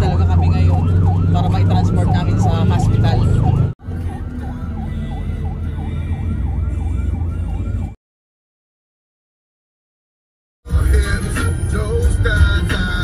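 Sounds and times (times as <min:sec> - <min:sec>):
ambulance siren wailing: 0:00.0 - 0:08.0
engine and road rumble: 0:00.0 - 0:08.0, 0:10.7 - 0:13.0.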